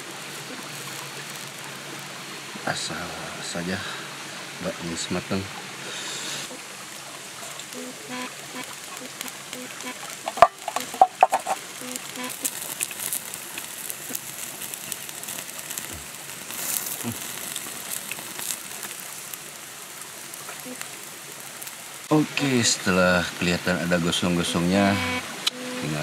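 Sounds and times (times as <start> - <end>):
chicken sizzling on grill: 0.0 - 26.0
wood fire crackling: 0.0 - 26.0.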